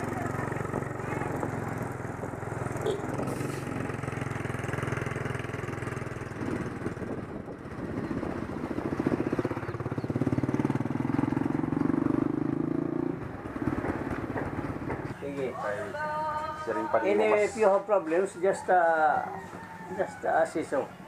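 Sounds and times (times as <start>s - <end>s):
motorcycle engine running: 0.0s - 15.1s.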